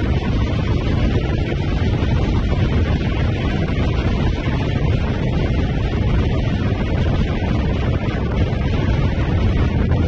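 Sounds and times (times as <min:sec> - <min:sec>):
engine and road noise: 0:00.0 - 0:10.0
wind rushing over camera: 0:00.0 - 0:10.0.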